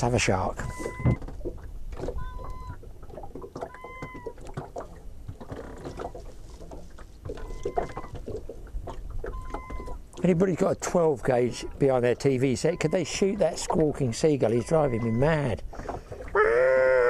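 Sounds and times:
seagull calling: 0.6 - 1.2, 2.2 - 2.8, 3.6 - 4.4, 7.4 - 8.2, 9.3 - 10.0, 11.6 - 13.6, 14.4 - 15.6.

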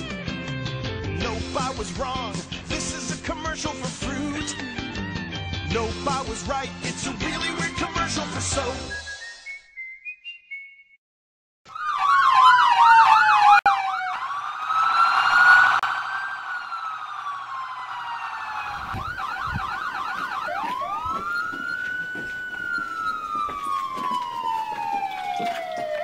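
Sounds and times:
police siren yelp and wail: 11.7 - 26.0.

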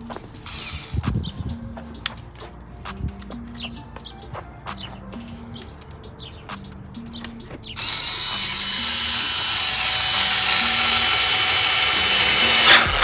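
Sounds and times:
cordless drill running: 0.4 - 1.0, 7.8 - 13.0.

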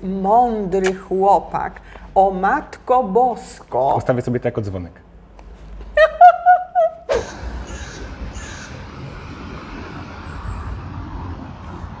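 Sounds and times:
woman laughing: 5.9 - 7.6.

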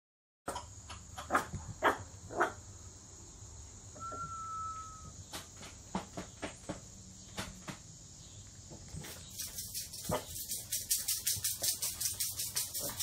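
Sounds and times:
puppy high whine: 4.0 - 5.2.

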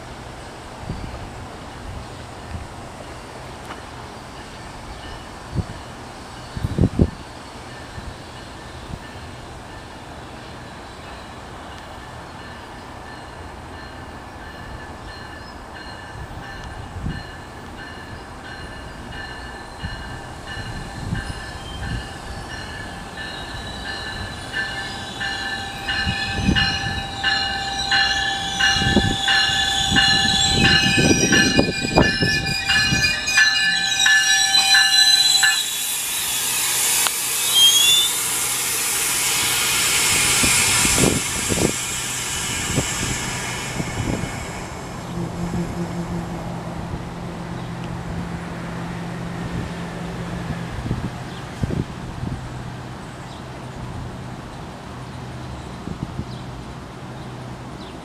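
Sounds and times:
train rumble and wheel noise: 0.0 - 58.0
high-pitched brake squeal: 18.8 - 47.7
short sliding squeals: 23.4 - 46.5
air brake hiss: 34.8 - 45.2.

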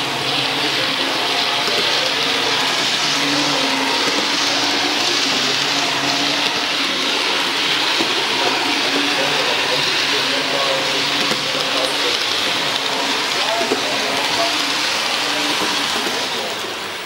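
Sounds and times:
model trains whirring on track: 0.0 - 17.0.

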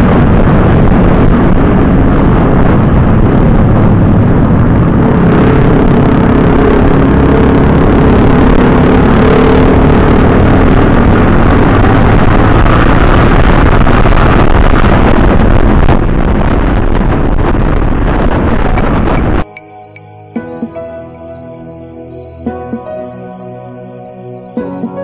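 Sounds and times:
wind rushing on microphone: 0.0 - 19.5
motorcycle engine: 0.0 - 23.2.

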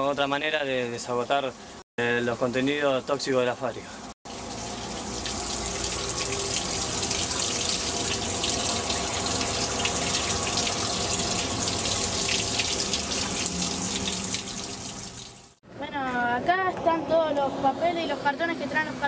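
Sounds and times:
water rushing through channel: 4.3 - 15.6.

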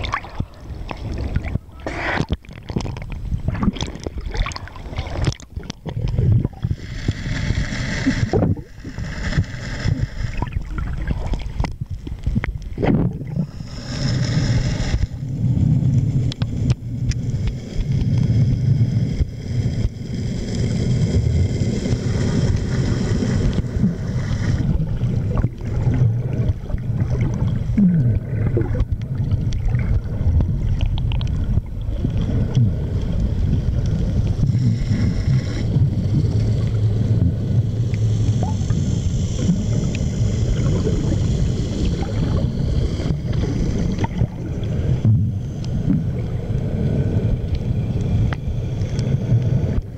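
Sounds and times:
underwater low rumble: 0.0 - 49.9
splashy hiss: 34.1 - 49.8.

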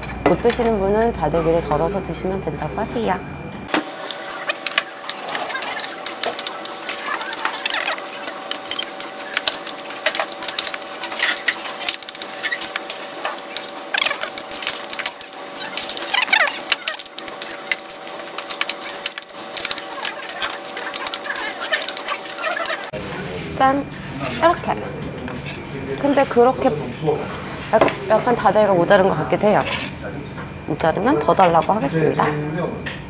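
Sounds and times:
utensils scraping a metal bowl: 3.7 - 23.0, 29.4 - 30.0.

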